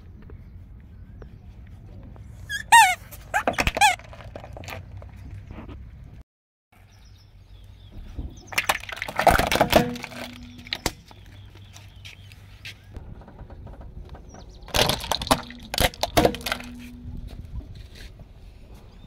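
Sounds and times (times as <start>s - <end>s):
rubber squeaky toys squeaking: 2.4s - 4.1s
plastic toys cracking: 8.6s - 11.1s, 14.7s - 16.9s.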